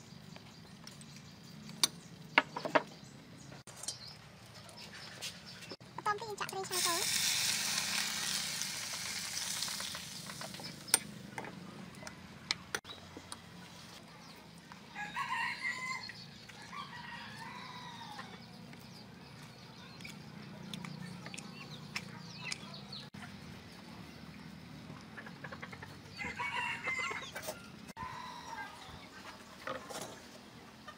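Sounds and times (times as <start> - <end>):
hot oil sizzling: 6.6 - 11.0
rooster crowing: 15.0 - 16.1, 26.2 - 28.9
hens clucking: 24.9 - 27.6.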